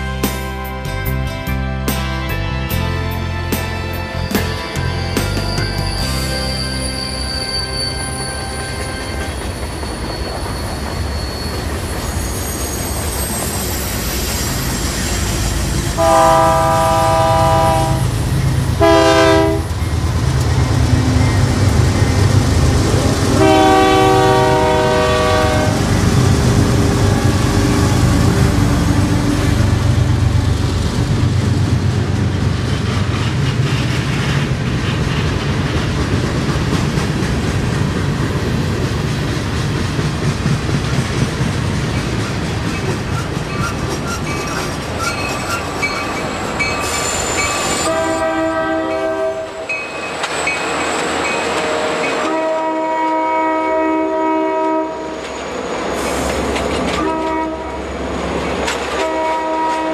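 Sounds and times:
freight train rumble and clatter: 0:00.0 - 0:59.9
locomotive horn blasts: 0:15.9 - 0:18.2, 0:18.8 - 0:19.8, 0:23.3 - 0:25.9, 0:47.8 - 0:49.7, 0:51.6 - 0:55.2, 0:57.0 - 0:57.9, 0:58.9 - 0:59.9.

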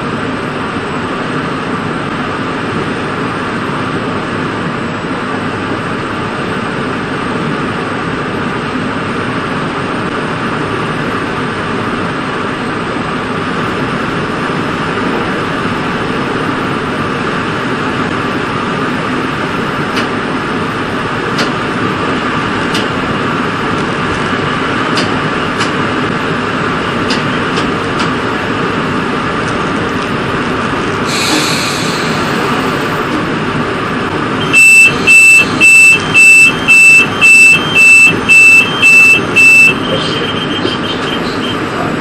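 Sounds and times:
train running on rails: 0:00.0 - 0:42.0
short hiss: 0:31.1 - 0:32.5
electronic beeps: 0:34.4 - 0:41.7.

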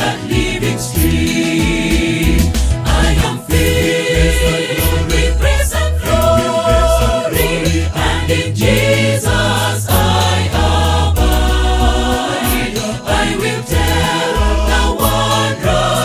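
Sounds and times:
choir singing a hymn: 0:00.0 - 0:16.0
steady beat: 0:00.3 - 0:16.0
deep bass notes: 0:01.0 - 0:12.4.

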